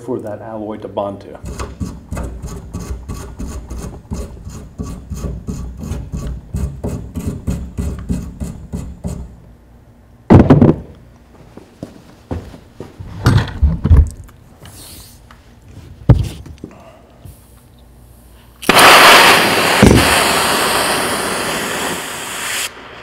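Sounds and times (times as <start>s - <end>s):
tool scraping metal: 1.4s - 9.4s
loud knocks: 10.3s - 10.9s.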